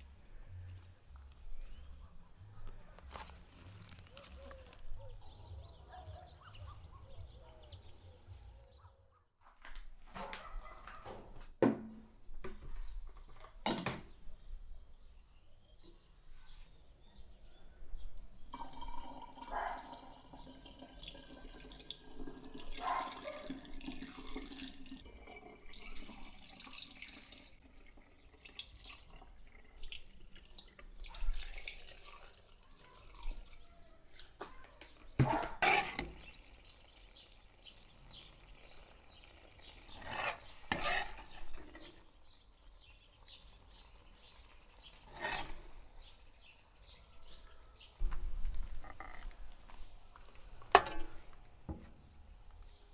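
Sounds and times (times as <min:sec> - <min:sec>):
water pouring and splashing: 0:18.5 - 0:34.4, 0:35.1 - 0:42.4.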